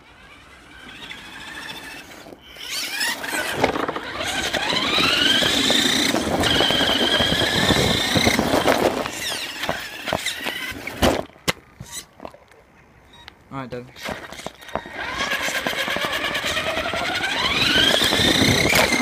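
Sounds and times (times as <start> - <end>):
electric motor and gears whining: 0.0 - 12.1, 14.0 - 19.0.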